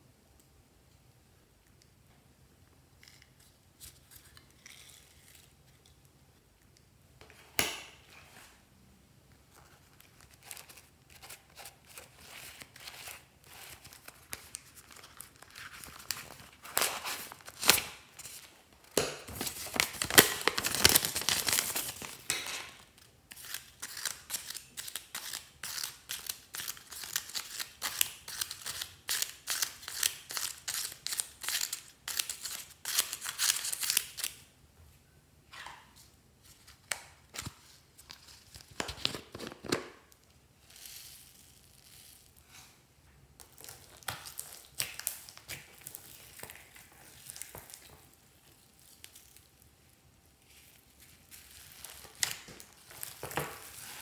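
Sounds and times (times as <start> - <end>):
paper crinkling: 9.5 - 34.3.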